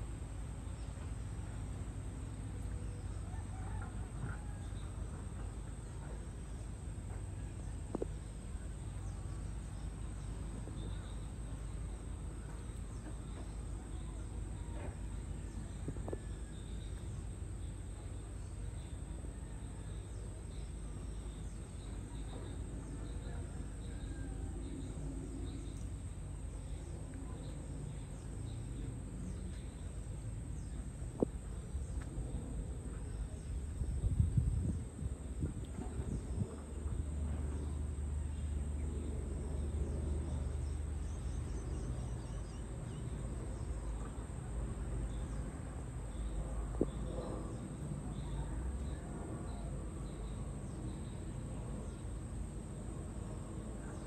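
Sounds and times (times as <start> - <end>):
steady low rumble: 20.5 - 54.0.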